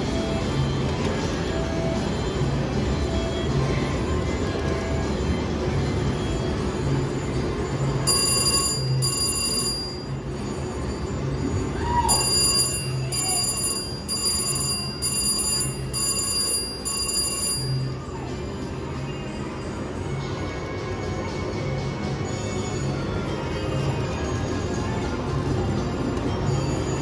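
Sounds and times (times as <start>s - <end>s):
slot machine electronic bell ringing: 6.8s - 20.4s, 21.1s - 27.0s.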